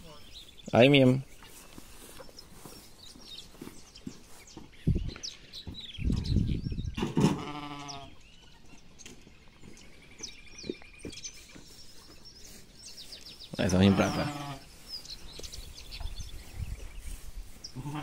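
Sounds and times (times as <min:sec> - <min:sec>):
sheep bleating: 0:07.4 - 0:08.2, 0:13.6 - 0:14.7, 0:17.8 - 0:18.0.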